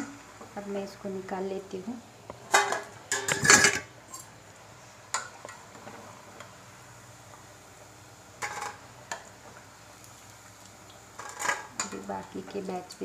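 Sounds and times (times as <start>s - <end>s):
metal spoon clattering on pan: 2.5s - 3.8s.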